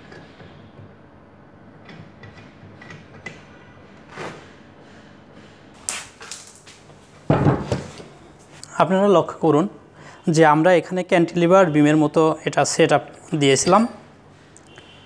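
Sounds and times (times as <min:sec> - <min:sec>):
metal clicks and knocks: 0:01.8 - 0:03.5.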